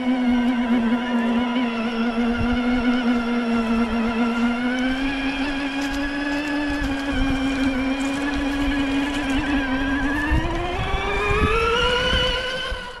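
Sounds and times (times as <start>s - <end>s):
electric motor and gears whining: 0.0s - 13.0s.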